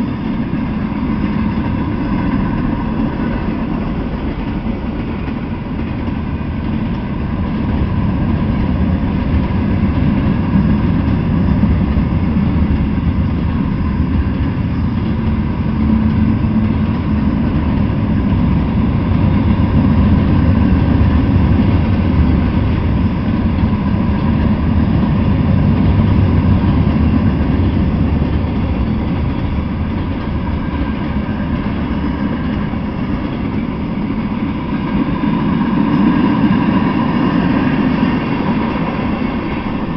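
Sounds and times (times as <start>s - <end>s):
freight train wheels rumbling: 0.0s - 39.9s.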